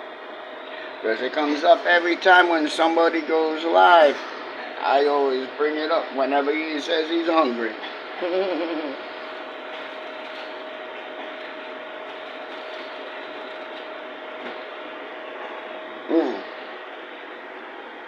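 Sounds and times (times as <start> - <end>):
mechanical hum: 0.0 - 18.0
short vocal sound: 16.1 - 16.5.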